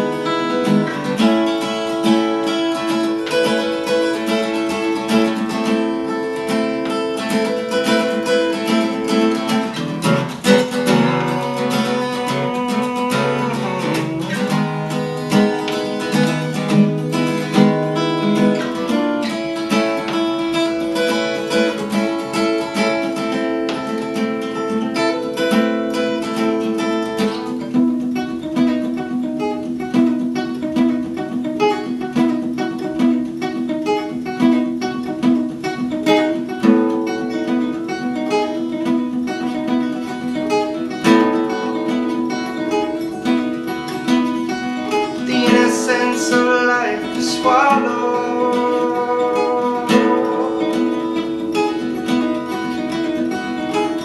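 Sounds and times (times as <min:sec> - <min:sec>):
acoustic guitar strummed and picked: 0:00.0 - 0:54.0
person singing: 0:44.7 - 0:52.7.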